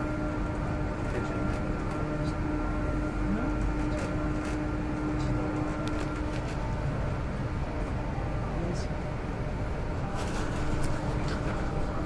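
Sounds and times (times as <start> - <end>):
train low rumble and hum: 0.0 - 12.0.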